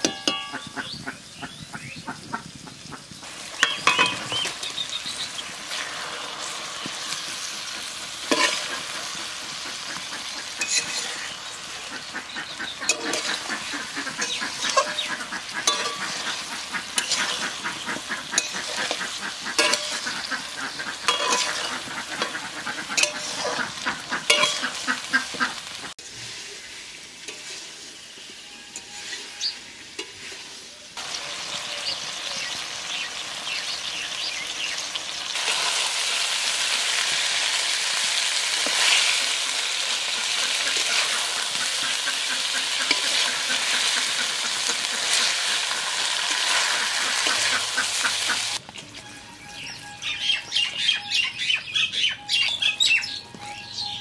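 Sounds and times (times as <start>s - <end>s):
metal spatula scraping and clinking: 0.0s - 0.7s, 3.5s - 4.7s, 5.7s - 9.3s, 10.0s - 11.5s, 12.8s - 25.4s, 27.2s - 30.7s, 38.6s - 49.2s
food sizzling in hot oil: 2.4s - 48.6s.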